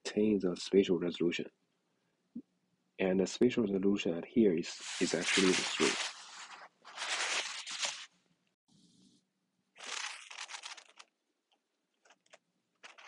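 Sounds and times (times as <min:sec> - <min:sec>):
rustling scraping bursts: 0:04.7 - 0:08.1.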